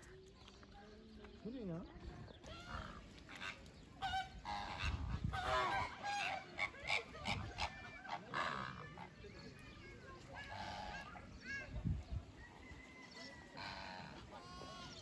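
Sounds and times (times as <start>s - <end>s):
flamingos calling: 2.5s - 9.2s, 10.4s - 11.2s, 13.5s - 15.0s.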